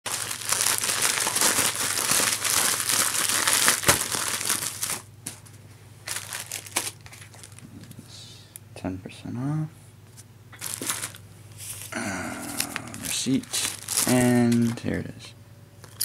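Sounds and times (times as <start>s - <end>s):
plastic mailer bag crinkling: 0.1s - 5.4s, 6.0s - 8.0s, 10.6s - 15.0s
plastic packaging rustling: 0.1s - 8.0s, 10.6s - 15.0s.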